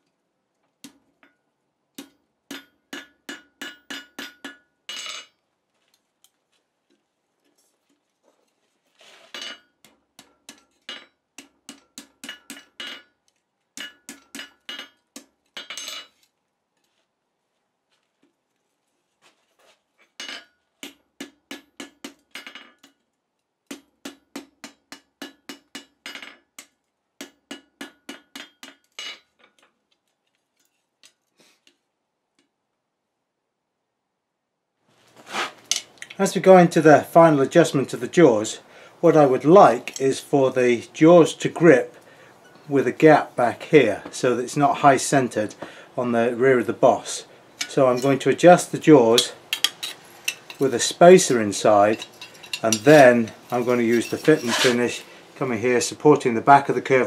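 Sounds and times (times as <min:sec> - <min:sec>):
hammer striking steel on anvil: 0:02.0 - 0:05.3, 0:09.4 - 0:13.2, 0:13.8 - 0:16.1, 0:20.2 - 0:23.0, 0:23.7 - 0:29.2.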